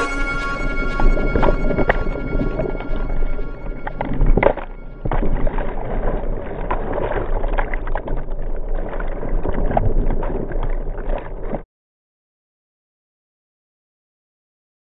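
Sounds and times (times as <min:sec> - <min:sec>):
surf rushing and splashing: 0:00.0 - 0:11.6.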